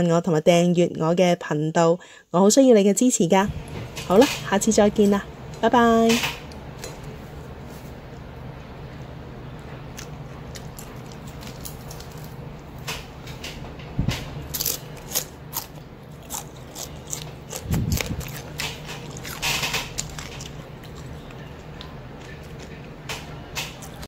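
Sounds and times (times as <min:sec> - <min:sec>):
crunching of crispy fish: 0:09.9 - 0:12.4, 0:14.5 - 0:21.4.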